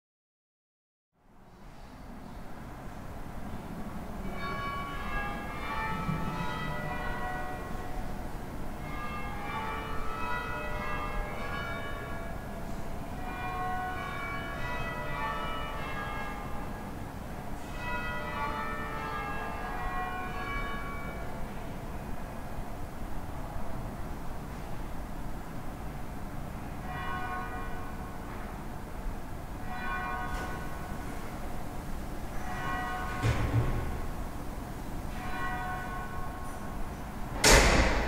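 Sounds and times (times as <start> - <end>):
church bells change ringing: 4.2 - 22.2, 26.7 - 28.9, 29.5 - 37.2.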